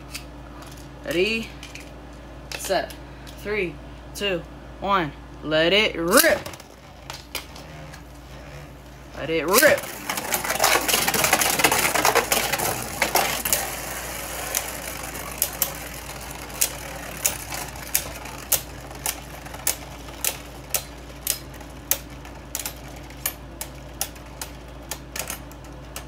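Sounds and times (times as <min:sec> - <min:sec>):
spinning tops whirring: 0:06.1 - 0:25.4
spinning tops clicking together: 0:09.5 - 0:25.4.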